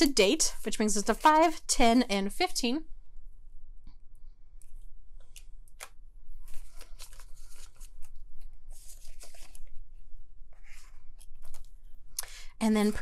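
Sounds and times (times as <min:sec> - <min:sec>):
banknotes rustling: 0:00.0 - 0:01.7, 0:05.2 - 0:10.0
binder pages turning: 0:04.6 - 0:12.0
plastic envelopes crinkling: 0:05.3 - 0:09.8.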